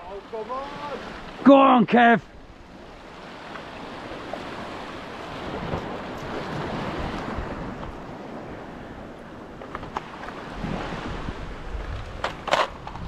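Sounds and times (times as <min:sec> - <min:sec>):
surf breaking on rocks: 0:00.0 - 0:02.2
wind noise on microphone: 0:05.2 - 0:13.0.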